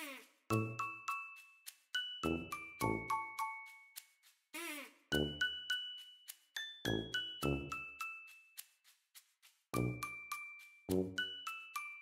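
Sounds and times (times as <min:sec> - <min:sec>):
bell-like melody: 0:00.5 - 0:04.1, 0:05.1 - 0:08.8, 0:09.7 - 0:12.0.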